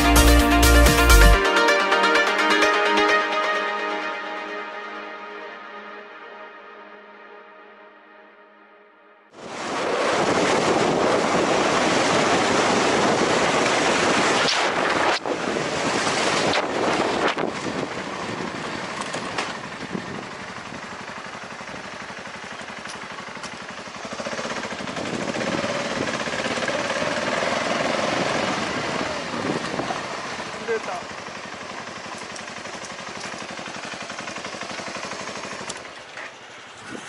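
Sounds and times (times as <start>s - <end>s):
wind rushing over microphone: 9.4s - 20.8s, 24.8s - 26.7s, 27.6s - 30.2s
motorcycle engine running: 9.4s - 37.0s.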